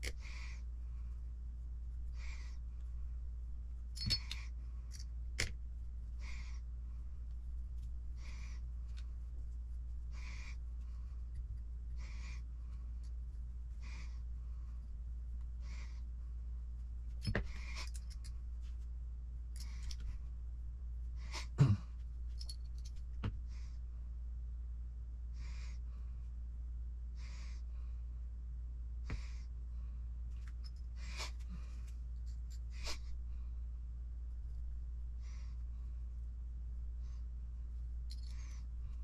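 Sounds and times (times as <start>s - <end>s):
steady breathing: 0.0s - 1.4s, 2.0s - 3.2s, 6.1s - 7.3s, 8.0s - 9.2s, 10.0s - 16.4s, 25.2s - 26.4s, 27.1s - 28.2s, 29.0s - 30.2s, 35.1s - 36.2s
constant low hum: 0.0s - 39.0s.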